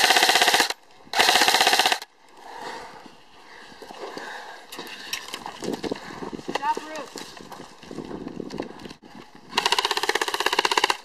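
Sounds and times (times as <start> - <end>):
airsoft rifle full-auto bursts: 0.0 - 2.1, 9.6 - 11.0.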